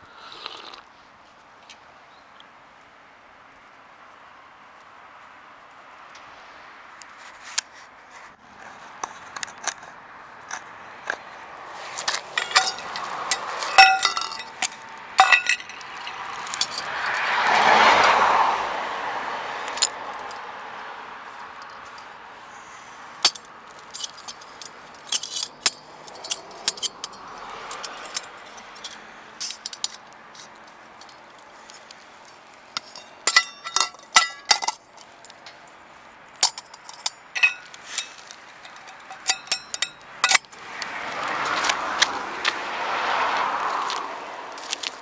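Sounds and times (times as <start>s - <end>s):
metal camp stove parts clinking: 12.0s - 17.2s, 23.2s - 31.9s, 32.8s - 35.6s, 36.4s - 40.6s
ringing metallic clinks: 12.4s - 17.2s, 32.8s - 35.6s, 36.4s - 40.5s.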